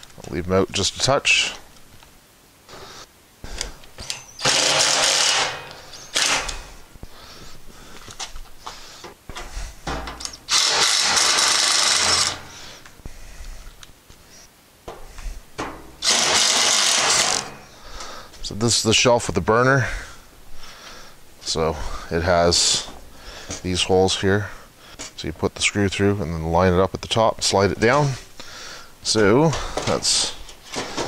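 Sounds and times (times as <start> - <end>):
impact driver driving screws: 4.0 - 6.7, 10.2 - 12.5, 16.0 - 17.7.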